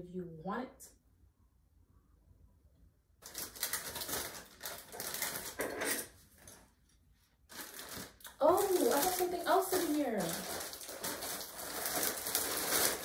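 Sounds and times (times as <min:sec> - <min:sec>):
plastic packaging crinkling: 0:03.2 - 0:06.7, 0:07.5 - 0:13.0.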